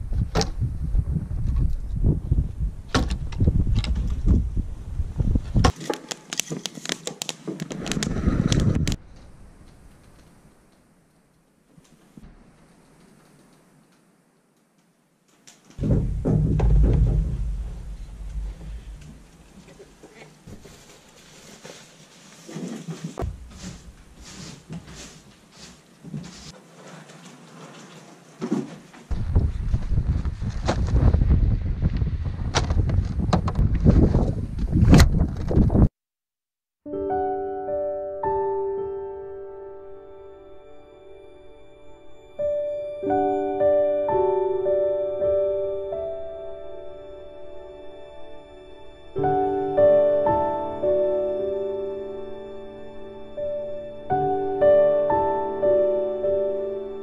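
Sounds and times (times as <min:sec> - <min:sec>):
wind buffeting microphone: 0:00.0 - 0:05.7, 0:07.8 - 0:09.1, 0:15.8 - 0:19.6, 0:29.1 - 0:35.9
rustling: 0:15.3 - 0:31.4
loud low rumble: 0:15.8 - 0:19.7, 0:23.2 - 0:24.4
firewood logs knocking: 0:15.8 - 0:19.8
wood stove clicks and knocks: 0:15.8 - 0:20.0
broom sweeping concrete floor: 0:20.5 - 0:28.0.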